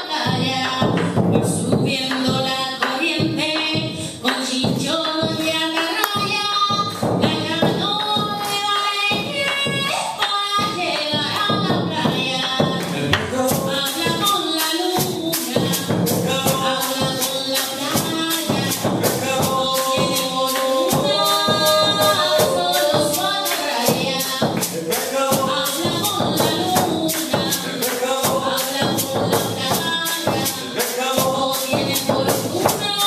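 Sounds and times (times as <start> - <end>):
voices singing: 0.0 - 33.0
bass drum beating: 0.3 - 2.6, 6.2 - 33.0
bright percussion strikes: 12.8 - 33.0.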